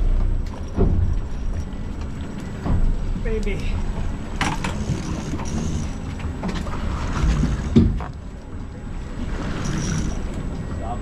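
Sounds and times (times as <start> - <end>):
water noise: 0.0 - 11.0
wind: 0.0 - 11.0.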